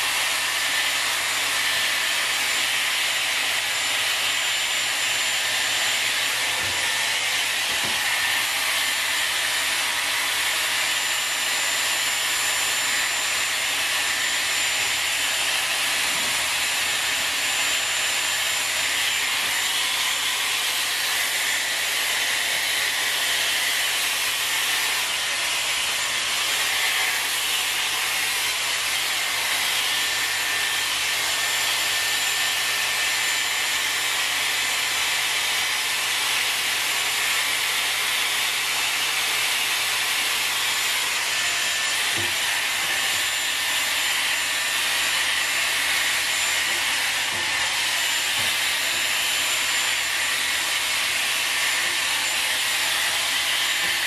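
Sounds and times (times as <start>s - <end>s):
hot-air brush blowing: 0.0s - 54.0s
high motor whine: 41.1s - 54.0s.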